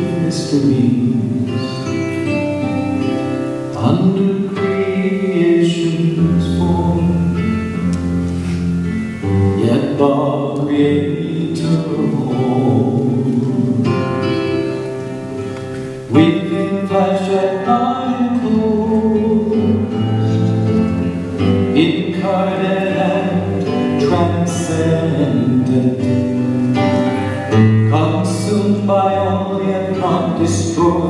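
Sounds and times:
man singing: 0.0 - 2.4, 3.6 - 8.2, 8.8 - 14.7, 16.0 - 31.0
acoustic guitar: 0.0 - 31.0.

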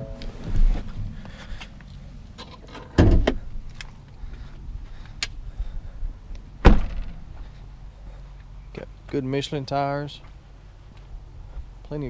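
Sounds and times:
heavy thumps: 6.6 - 7.4.

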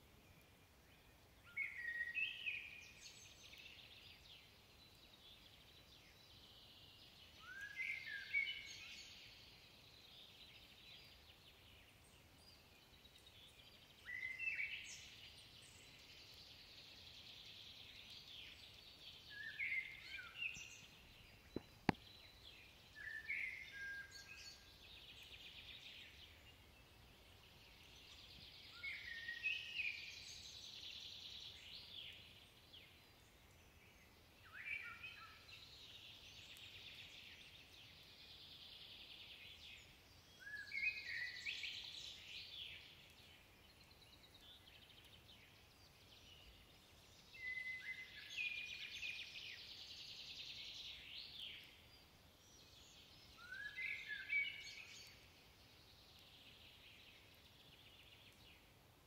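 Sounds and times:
blackbird singing: 1.5 - 4.2, 5.2 - 9.4, 13.4 - 16.4, 17.8 - 33.4, 34.0 - 37.6, 39.3 - 55.3.

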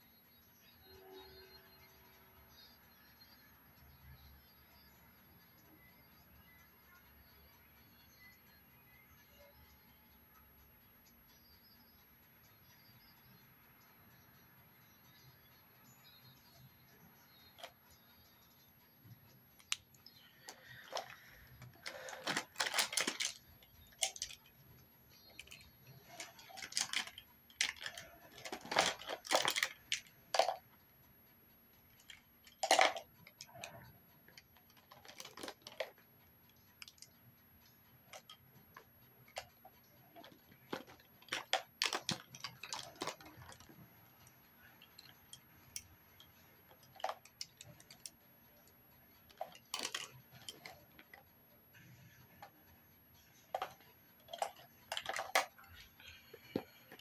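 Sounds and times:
makeup items clicking and rustling: 17.3 - 18.2, 19.6 - 24.5, 25.2 - 30.7, 31.9 - 36.1, 36.8 - 37.1, 38.1 - 51.3, 53.2 - 57.0.

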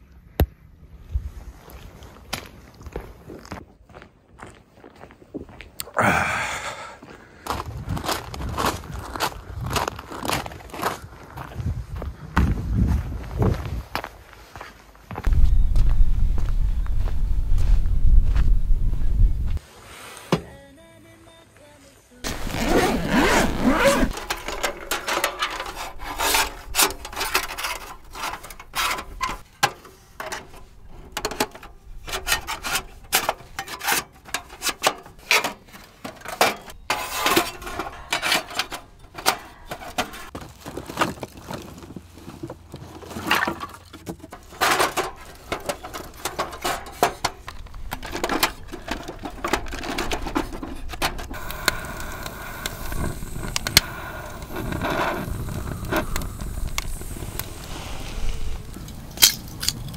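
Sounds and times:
metal panels clicking and clanking: 24.0 - 40.4, 43.2 - 51.4
torch lighter hissing: 51.3 - 58.8.

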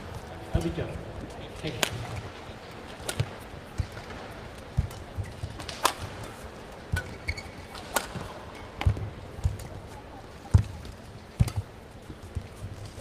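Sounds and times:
rackets hitting shuttlecock: 1.6 - 11.7.

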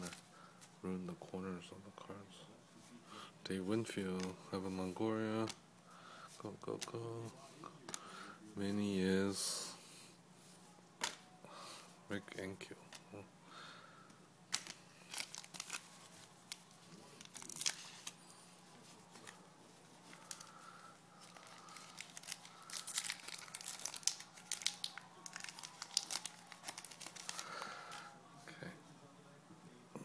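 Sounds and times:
foil wrapper tearing and crinkling: 14.5 - 18.2, 21.2 - 28.1.

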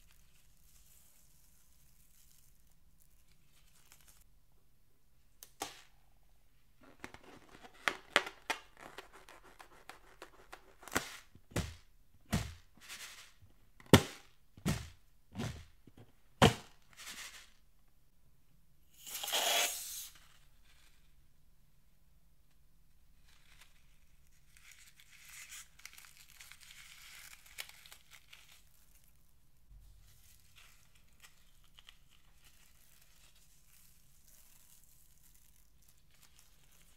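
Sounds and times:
rubber balloon squeaks and pops: 19.0 - 20.0.

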